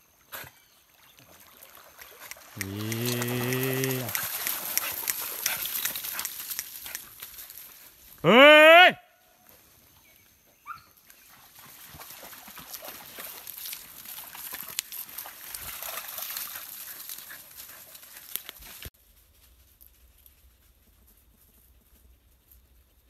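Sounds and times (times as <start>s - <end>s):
dog splashing through water: 1.0s - 6.5s, 11.3s - 17.3s.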